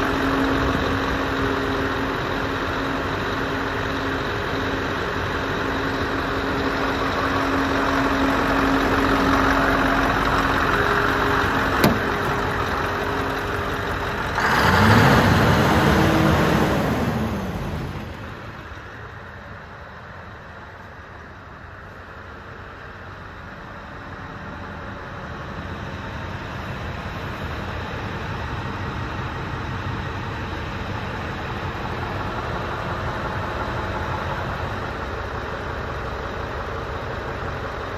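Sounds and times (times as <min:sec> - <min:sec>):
diesel engine idling: 0:00.0 - 0:37.9
engine revving: 0:14.1 - 0:18.6.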